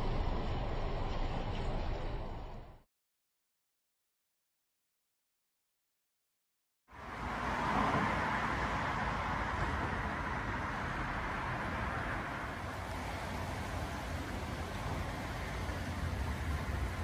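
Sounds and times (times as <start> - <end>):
road traffic tyre and engine noise: 0.0 - 2.8, 6.9 - 17.0.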